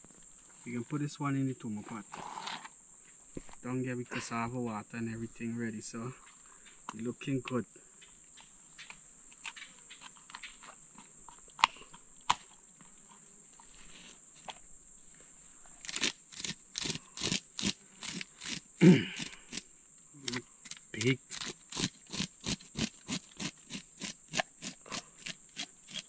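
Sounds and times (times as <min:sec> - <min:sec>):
high insect drone: 0:00.0 - 0:26.0
knife scraping fish scales: 0:15.8 - 0:18.6, 0:20.3 - 0:26.0.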